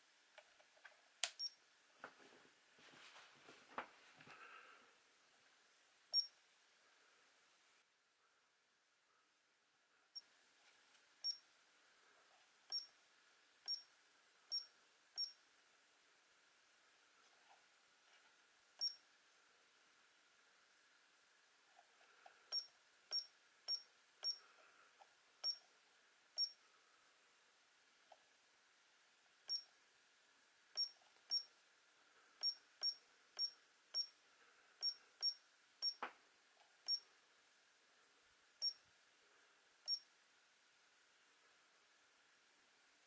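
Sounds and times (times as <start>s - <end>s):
high-pitched key beeps: 22.5s - 24.4s, 32.4s - 34.1s, 34.8s - 36.0s.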